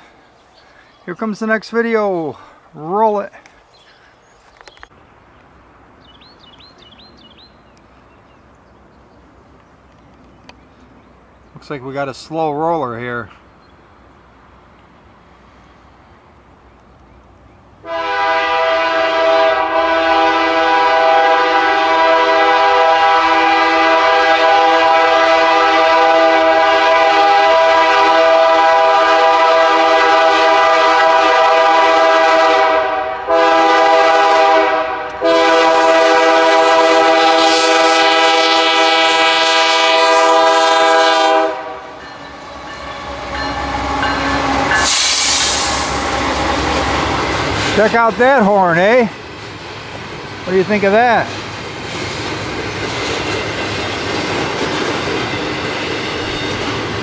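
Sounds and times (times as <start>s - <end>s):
train rumble and wheel noise: 4.5s - 57.0s
locomotive air horn: 17.8s - 47.2s.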